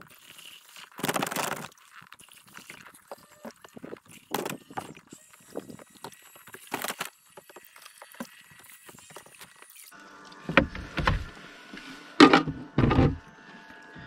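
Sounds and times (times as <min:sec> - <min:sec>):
thumps and knocks on kayak: 0:12.2 - 0:13.2.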